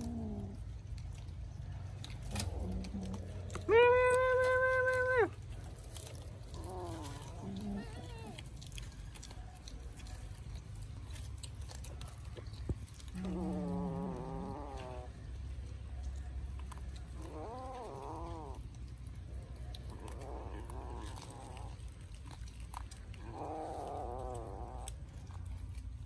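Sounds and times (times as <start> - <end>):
cat meowing: 3.6 - 5.4.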